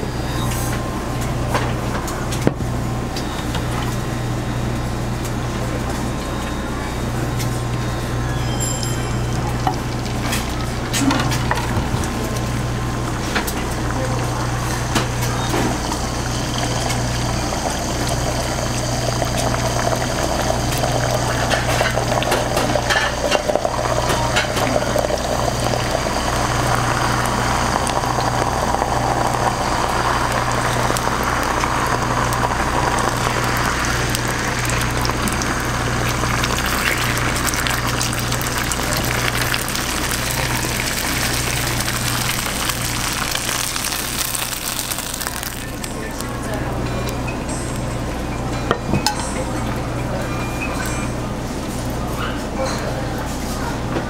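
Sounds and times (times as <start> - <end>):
egg sizzling in frying pan: 14.8 - 46.4.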